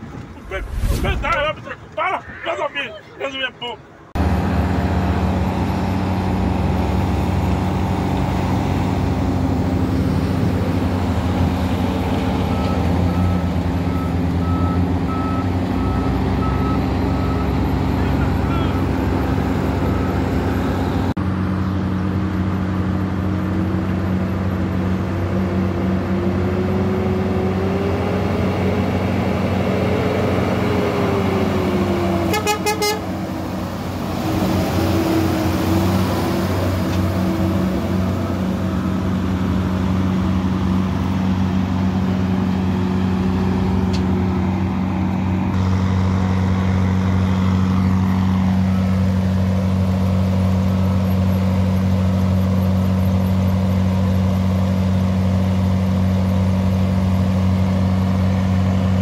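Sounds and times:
truck diesel engine running: 4.2 - 59.0
truck horn toot: 32.2 - 33.2.

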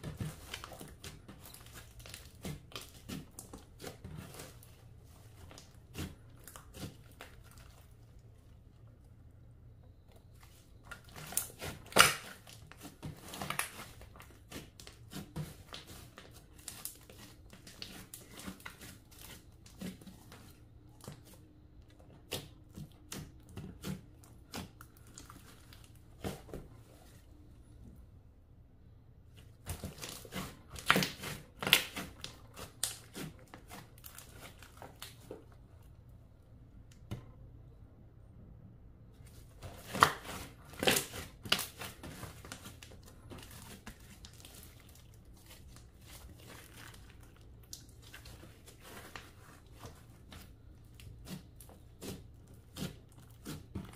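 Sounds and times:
slime crackling and popping: 10.8 - 20.0, 29.6 - 35.2, 39.6 - 53.9.

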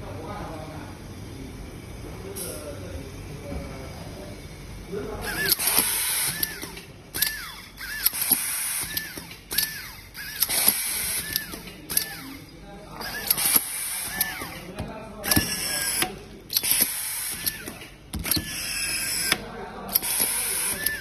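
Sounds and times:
electric screwdriver motor whining: 7.2 - 12.4, 15.3 - 19.4.

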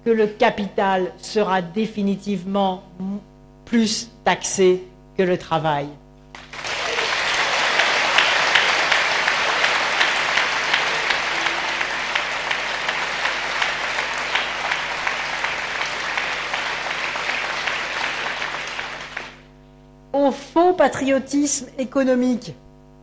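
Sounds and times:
large audience applauding: 6.3 - 19.6.

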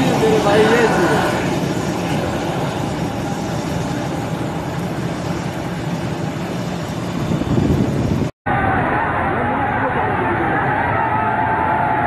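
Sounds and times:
jet engine rumble: 0.0 - 10.9.

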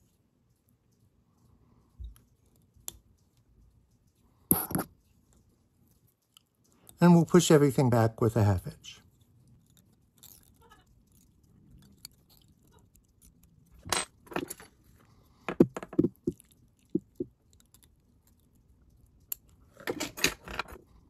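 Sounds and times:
small clicks and rustles: 0.0 - 21.0.

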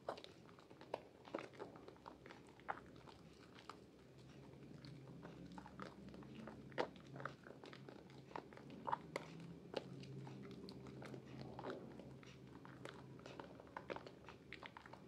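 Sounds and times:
wet soap lather squishing: 0.0 - 15.0.

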